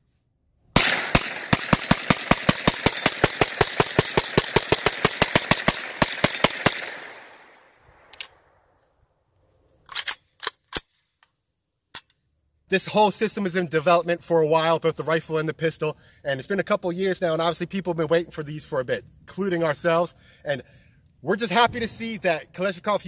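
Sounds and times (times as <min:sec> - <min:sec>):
gunshot echo: 0:00.8 - 0:08.1
pistol gunshots: 0:00.8 - 0:08.1.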